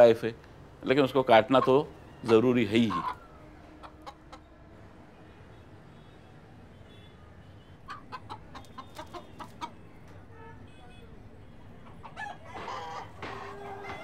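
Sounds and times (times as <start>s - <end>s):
low city hum: 0.0s - 14.0s
rooster clucking: 1.3s - 4.5s, 7.8s - 10.0s, 11.8s - 14.0s.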